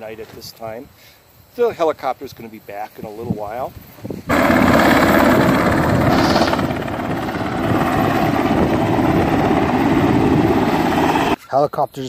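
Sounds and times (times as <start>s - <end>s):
helicopter rotor chopping: 4.3s - 11.4s.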